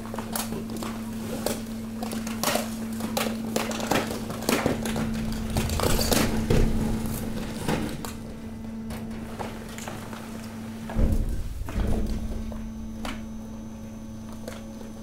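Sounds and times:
trash crackling and snapping: 0.0 - 15.0
hydraulic press humming: 3.4 - 15.0.

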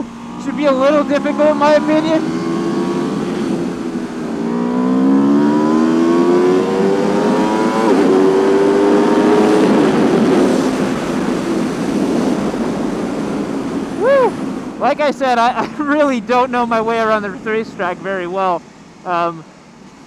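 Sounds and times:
motorcycle engine accelerating: 0.0 - 14.8
wind rush: 0.0 - 15.4.

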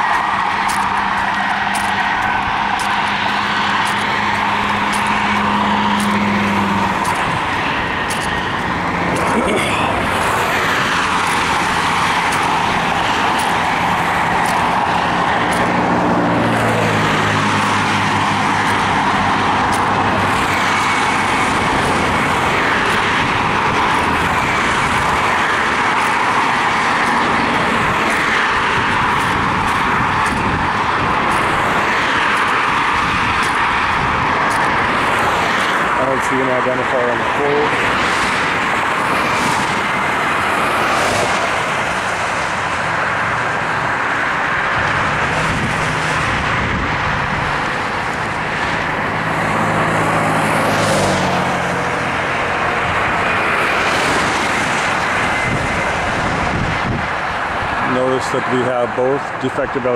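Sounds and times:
road and wind noise: 0.0 - 59.9.

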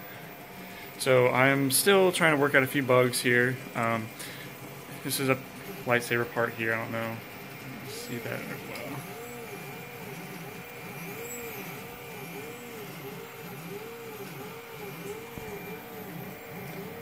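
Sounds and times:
stepper motors whining: 0.0 - 17.0.

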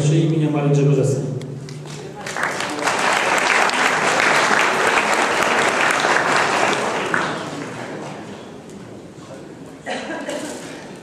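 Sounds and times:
audience applauding: 1.8 - 8.2.

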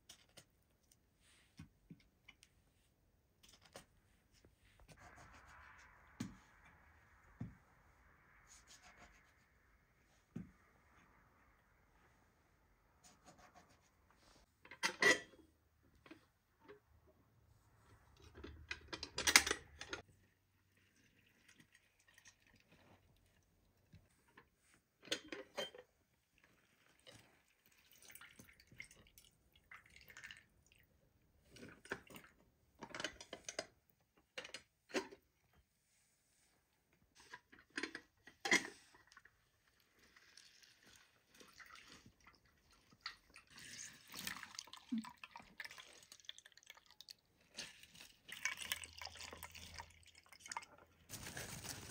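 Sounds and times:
juice dripping into metal bowl: 48.2 - 50.9.

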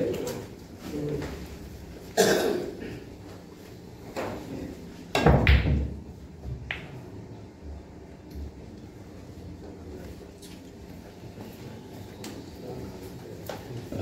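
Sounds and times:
pool balls clacking: 5.1 - 7.1.

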